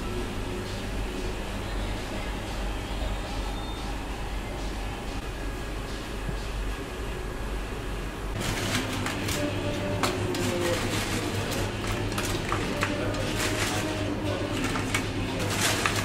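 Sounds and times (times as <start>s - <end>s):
steady low hum: 0.0s - 16.0s
tortilla chips crackling: 8.4s - 16.0s.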